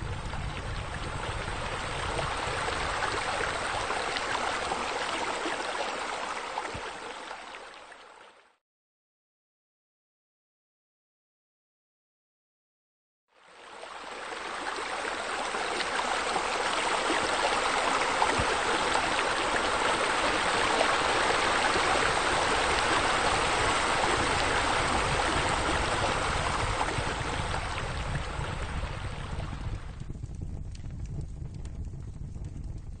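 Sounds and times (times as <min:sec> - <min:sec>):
waterfall rushing into pool: 0:00.0 - 0:08.0, 0:13.6 - 0:29.8.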